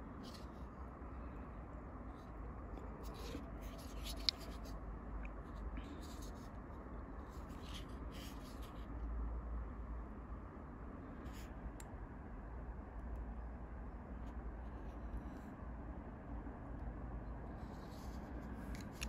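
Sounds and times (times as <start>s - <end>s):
hands rustling handling knife: 3.0s - 4.7s.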